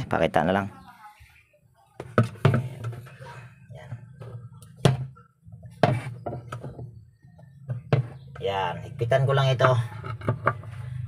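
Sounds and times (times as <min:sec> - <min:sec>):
plastic knocks and clacks: 0:02.0 - 0:03.1, 0:09.5 - 0:10.8.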